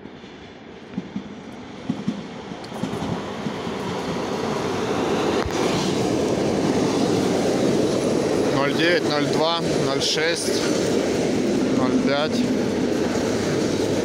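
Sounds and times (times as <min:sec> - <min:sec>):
train wheels rumbling: 0:00.0 - 0:14.0.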